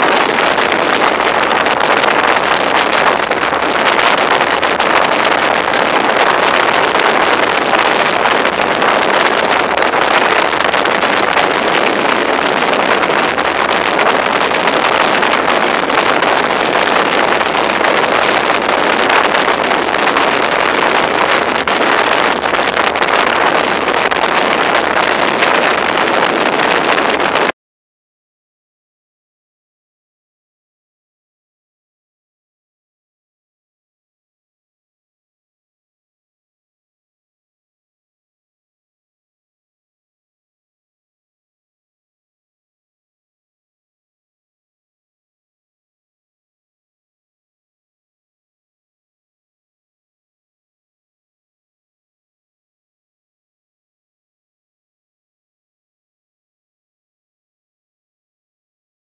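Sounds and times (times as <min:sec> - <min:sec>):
water rushing: 0:00.0 - 0:27.5
wind rushing over microphone: 0:00.0 - 0:27.6.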